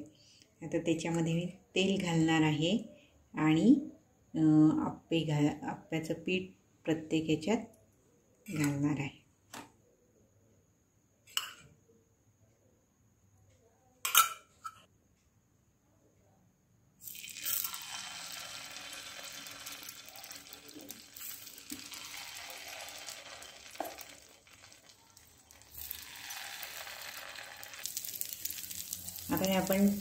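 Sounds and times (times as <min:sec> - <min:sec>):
batter sizzling in hot oil: 0:17.0 - 0:30.0.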